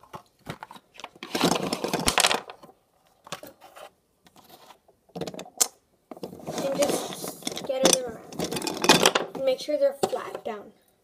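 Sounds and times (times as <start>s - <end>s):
wax crayons clattering into a bowl: 6.2s - 9.4s.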